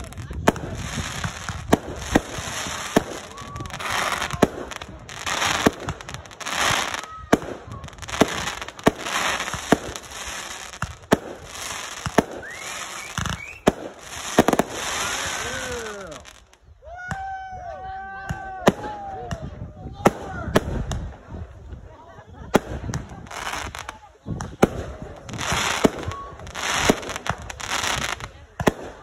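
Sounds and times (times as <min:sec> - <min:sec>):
firework bangs: 0:00.0 - 0:16.5, 0:22.5 - 0:29.0
hissing crackling star bursts: 0:08.1 - 0:16.6.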